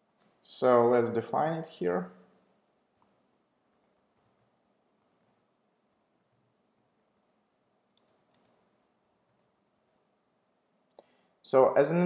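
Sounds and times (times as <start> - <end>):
keyboard typing: 2.0 - 10.5.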